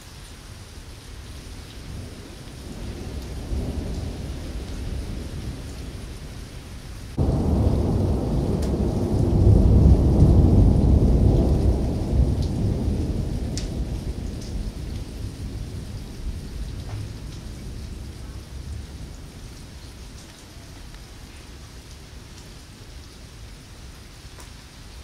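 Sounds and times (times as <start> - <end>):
steady rain: 0.0 - 25.0
thunder rumbling: 1.8 - 20.1.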